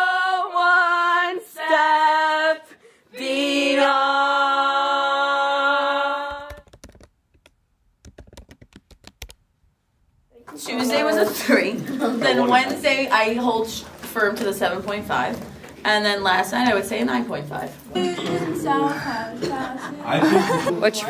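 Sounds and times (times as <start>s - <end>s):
group singing a show tune: 0.0s - 6.6s, 18.0s - 21.0s.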